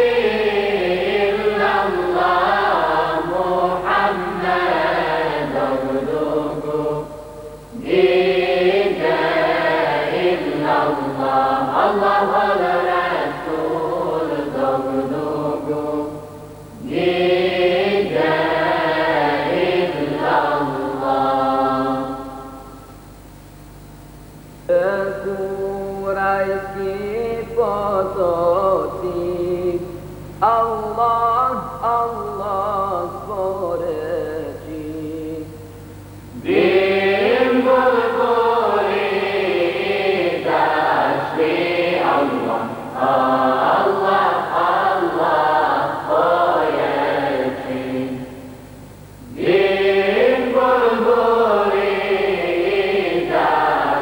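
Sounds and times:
choir singing a hymn: 0.0 - 22.9, 36.3 - 48.6, 49.2 - 54.0
steady low hum: 0.0 - 54.0.

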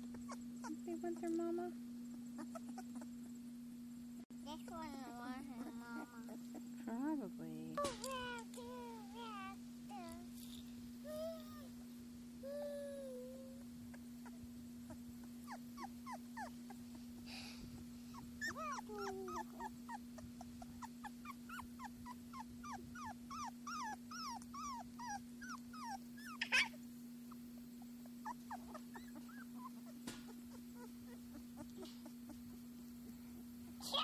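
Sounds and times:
puppies whimpering: 0.0 - 1.3, 2.1 - 3.4, 4.5 - 6.8, 11.1 - 32.7
steady low hum: 0.0 - 34.0.

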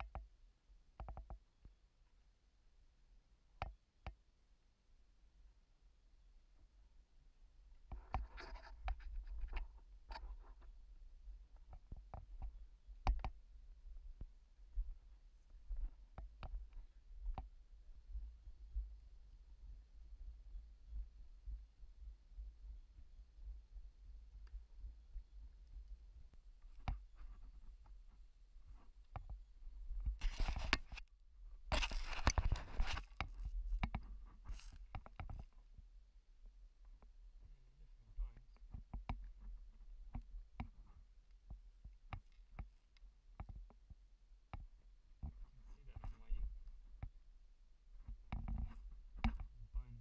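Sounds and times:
scraping and crunching against rock: 30.2 - 31.0, 31.7 - 33.4.

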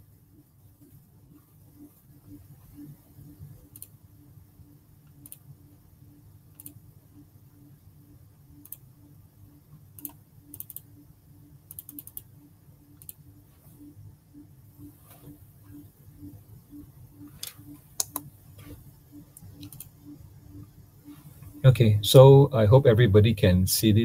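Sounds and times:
low hum: 0.0 - 24.0
keyboard and mouse clicks: 3.7 - 4.0, 5.0 - 5.4, 6.5 - 6.8, 8.6 - 8.8, 10.0 - 10.9, 11.7 - 12.3, 12.9 - 13.2, 17.3 - 20.0.

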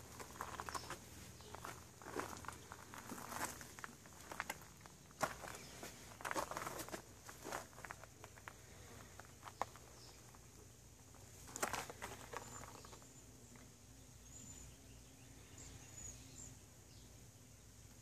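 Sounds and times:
plants rustling and crackling: 0.0 - 13.7
low steady hum: 0.0 - 18.0.

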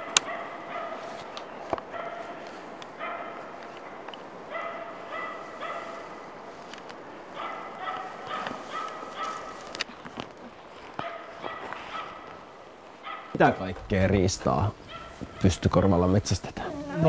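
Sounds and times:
distant dog barking: 0.0 - 1.2, 1.9 - 6.4, 7.3 - 9.7, 11.0 - 13.7, 14.8 - 15.7.

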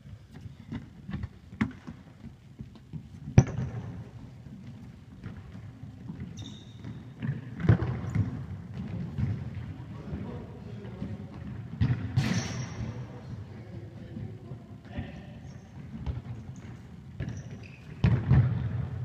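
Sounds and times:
ball bouncing on hall floor: 0.0 - 13.3, 14.1 - 19.0.

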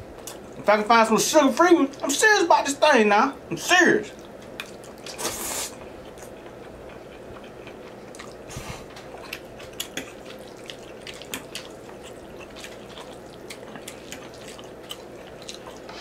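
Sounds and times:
chewing clicks and smacks: 0.2 - 0.6, 4.1 - 5.2, 5.8 - 15.9.

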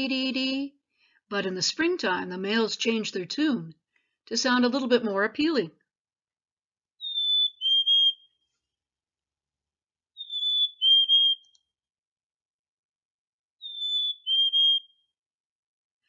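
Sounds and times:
chickadee whistled song: 7.0 - 8.4, 10.2 - 11.7, 13.6 - 15.1.

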